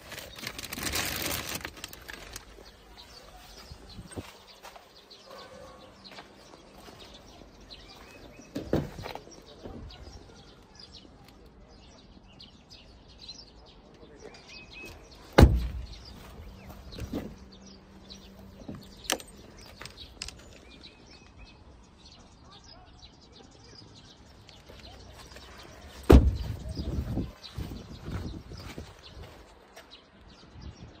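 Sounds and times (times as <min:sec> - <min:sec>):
birds chirping: 0:00.0 - 0:31.0
car door slamming: 0:15.3 - 0:16.3, 0:26.0 - 0:26.6
car door thump: 0:15.4 - 0:16.0, 0:26.0 - 0:26.6.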